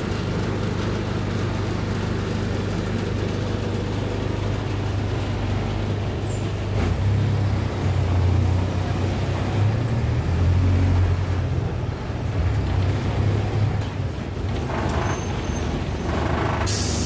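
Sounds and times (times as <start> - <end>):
bus engine drone: 0.0 - 17.0
road noise: 0.0 - 17.0.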